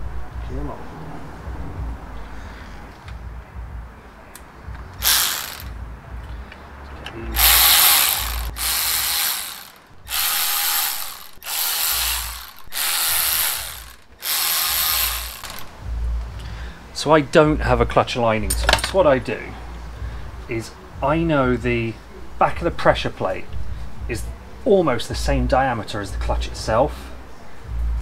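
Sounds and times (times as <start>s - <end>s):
cordless ratchet spinning bolts: 5.0s - 5.7s, 7.4s - 15.7s.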